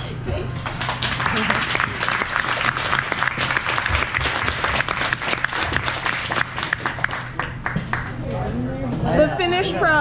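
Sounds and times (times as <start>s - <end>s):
crowd applauding: 0.6s - 8.2s.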